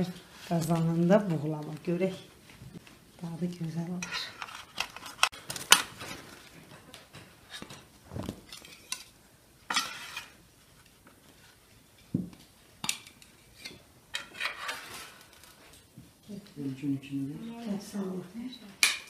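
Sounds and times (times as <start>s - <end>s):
metal spatula scraping baking tray: 9.7s - 10.4s, 13.6s - 15.4s
plates clinking: 9.7s - 10.4s.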